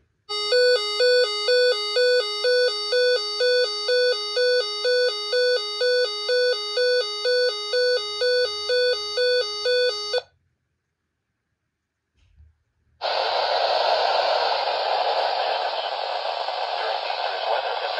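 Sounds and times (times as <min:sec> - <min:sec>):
electronic two-tone alarm warble: 0:00.3 - 0:10.2.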